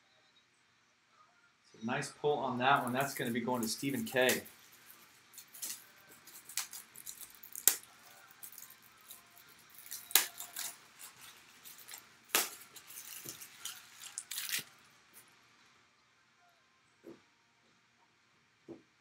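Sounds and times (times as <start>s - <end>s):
packaging scraping and rustling: 2.7s - 15.3s
card packaging clicks and taps: 2.8s - 14.7s.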